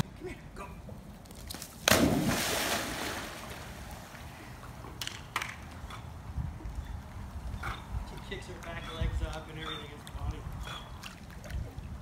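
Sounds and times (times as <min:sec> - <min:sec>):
dog splashing into pool: 0:01.5 - 0:04.1
water sloshing: 0:01.8 - 0:04.8.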